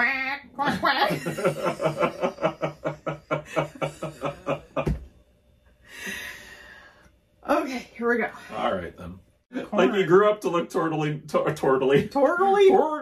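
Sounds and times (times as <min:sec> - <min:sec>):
person laughing: 0:00.6 - 0:05.0
low thump: 0:04.7 - 0:05.2.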